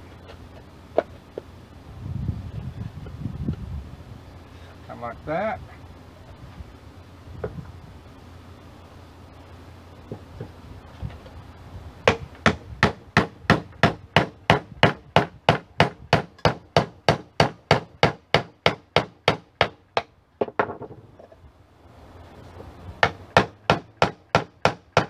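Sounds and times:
hammer striking nails into wood: 12.0s - 20.8s, 23.0s - 25.0s.

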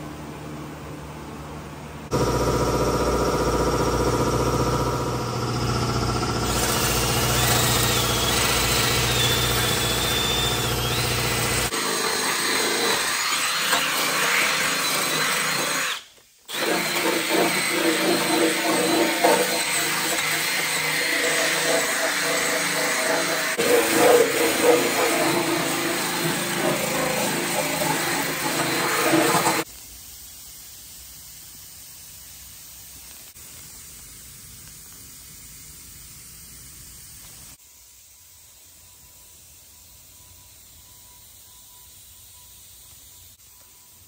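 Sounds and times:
abrasive power tool on sheet metal: 2.1s - 29.7s.

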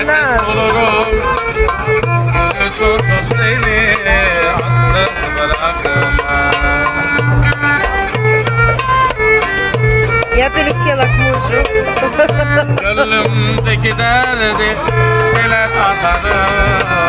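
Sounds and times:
frame drum: 0.0s - 17.0s
violin melody with vibrato: 0.0s - 17.0s.

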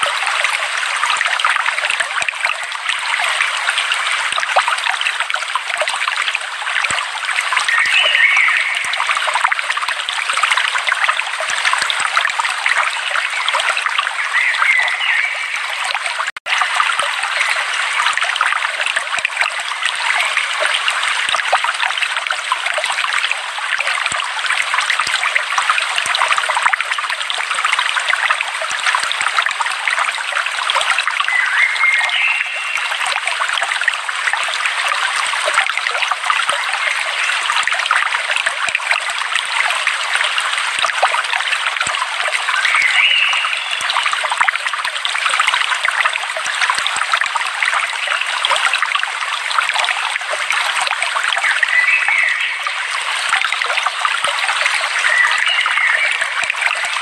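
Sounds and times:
stream running over rocks: 0.0s - 57.0s
birdlike calls: 7.6s - 9.1s, 14.2s - 15.8s, 31.3s - 33.0s, 42.6s - 44.1s, 51.4s - 53.0s.

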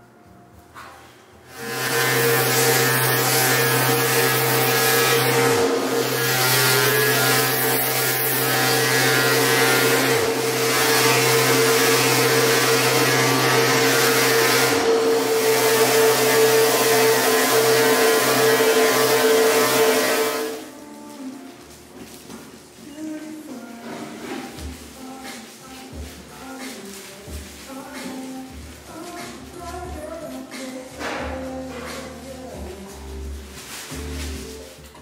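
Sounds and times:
electric orbital sander running: 1.5s - 20.6s.

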